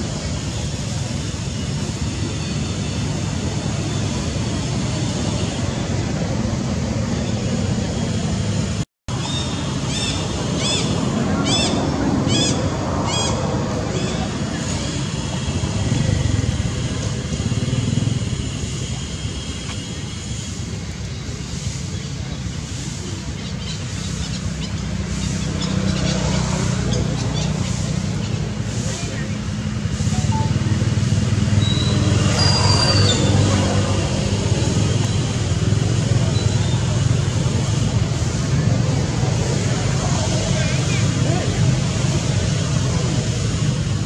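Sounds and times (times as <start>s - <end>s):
vehicle engine humming: 0.0s - 44.0s
high arched chirping call: 9.1s - 15.1s, 21.9s - 28.6s, 29.9s - 33.6s.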